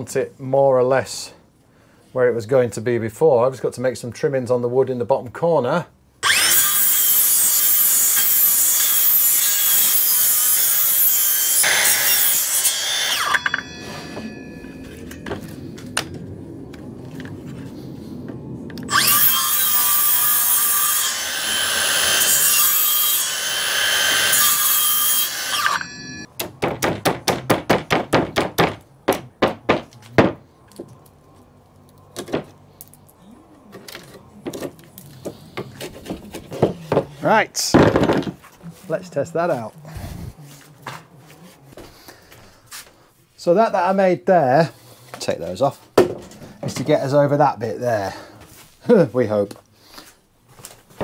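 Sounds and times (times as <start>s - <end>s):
circular saw cutting wood: 6.2s - 16.0s, 18.7s - 26.3s
sharp knocks: 26.4s - 30.4s.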